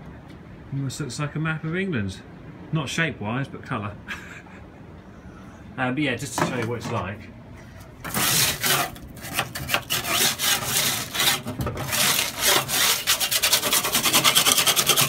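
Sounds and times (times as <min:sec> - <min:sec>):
paint scraper scraping metal: 0:08.0 - 0:15.0.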